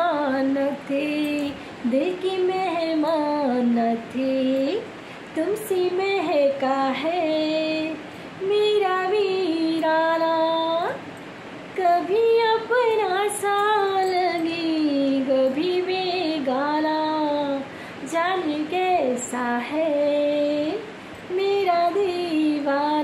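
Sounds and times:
woman singing unaccompanied: 0:00.0 - 0:11.1, 0:11.7 - 0:23.0.

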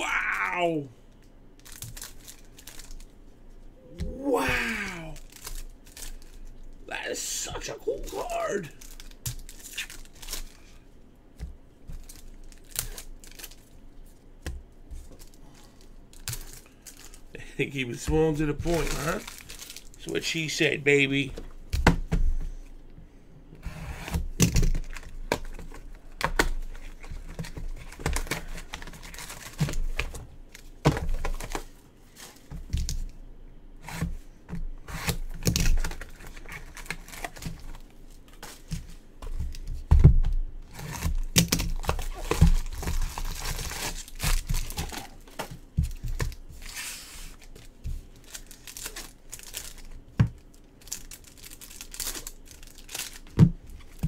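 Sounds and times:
foil wrappers tearing and crinkling: 0:01.6 - 0:03.1, 0:04.5 - 0:06.5, 0:07.5 - 0:10.8, 0:12.0 - 0:13.7, 0:16.1 - 0:20.1, 0:24.4 - 0:31.6, 0:35.0 - 0:37.9, 0:40.7 - 0:45.4, 0:46.0 - 0:54.0.

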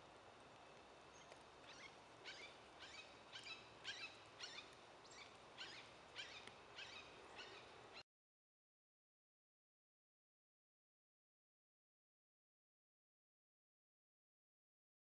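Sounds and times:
faint bird calls: 0:01.1 - 0:08.0.

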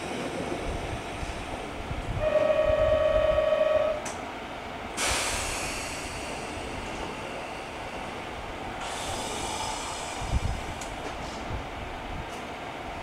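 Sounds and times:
low rumble of trains: 0:00.0 - 0:13.0
train horn: 0:02.1 - 0:04.2
air hiss burst: 0:05.0 - 0:06.9, 0:08.8 - 0:11.4.

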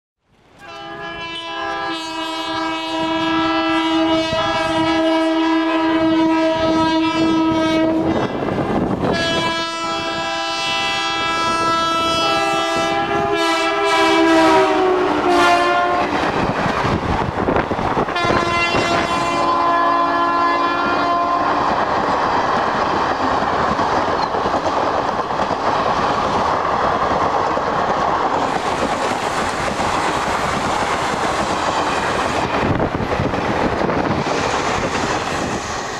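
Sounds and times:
train coaches rumbling: 0:00.4 - 0:35.9
locomotive horn blasts: 0:00.6 - 0:08.3, 0:09.1 - 0:16.2, 0:18.1 - 0:21.7
wheels clacking over rail joints: 0:21.6 - 0:35.9.

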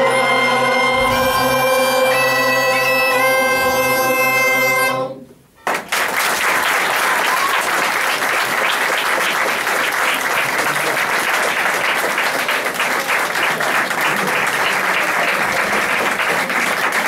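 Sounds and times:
bagpipe with drone: 0:00.0 - 0:05.2
choir singing: 0:00.0 - 0:05.3
audience applause: 0:05.6 - 0:17.0.

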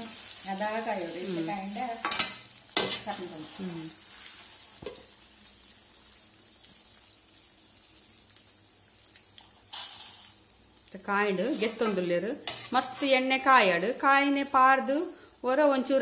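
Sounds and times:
food sizzling in hot oil: 0:00.0 - 0:16.0
ladle clanking and scraping pan: 0:02.0 - 0:03.2, 0:11.6 - 0:13.1.

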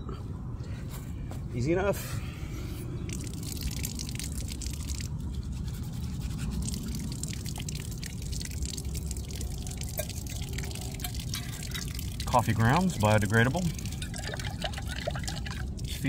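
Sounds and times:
steady low rumble: 0:00.0 - 0:16.0
water dripping onto dead leaves: 0:03.0 - 0:16.0
metal cup being scrubbed: 0:05.2 - 0:07.2.

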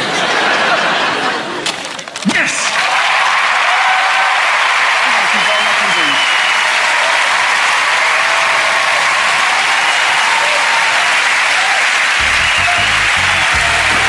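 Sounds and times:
audience applauding: 0:02.2 - 0:14.0
show music: 0:12.1 - 0:14.0.

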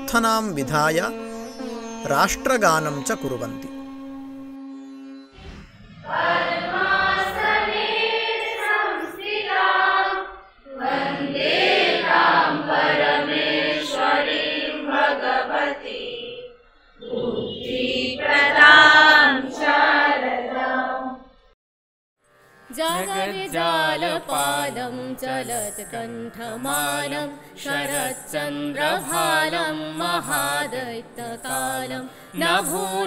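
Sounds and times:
group singing a prayer: 0:06.0 - 0:21.2, 0:22.8 - 0:33.0.

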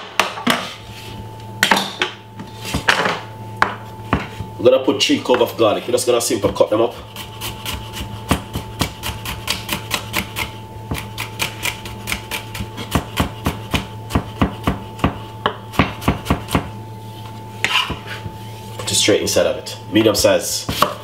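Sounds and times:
knife chopping on wooden board: 0:07.2 - 0:16.7, 0:17.6 - 0:18.3, 0:20.6 - 0:21.0.

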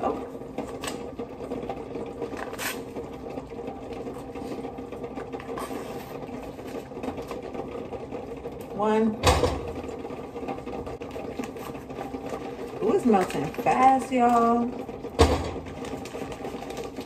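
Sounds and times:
low machine hum: 0:00.0 - 0:17.0
paper wrapper crinkling: 0:15.7 - 0:17.0.

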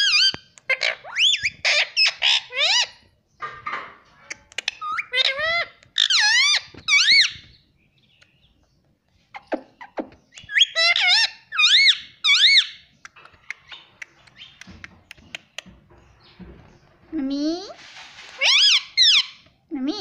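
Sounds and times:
parakeet squeaky calls: 0:00.0 - 0:03.0, 0:04.6 - 0:07.5, 0:09.3 - 0:14.6, 0:18.4 - 0:19.4.

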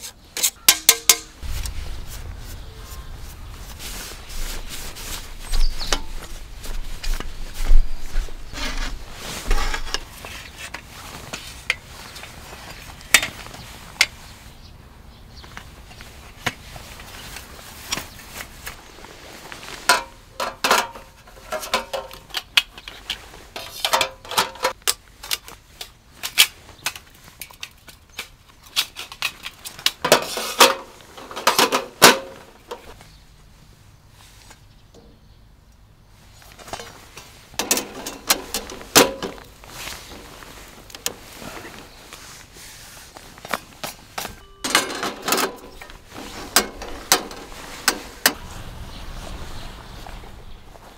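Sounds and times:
metal panels clanking: 0:37.6 - 0:39.5, 0:44.6 - 0:48.5.

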